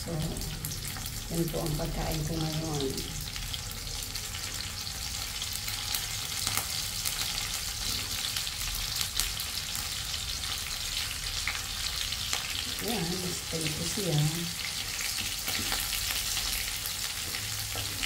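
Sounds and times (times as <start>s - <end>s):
fish sizzling in hot oil: 0.0s - 18.0s.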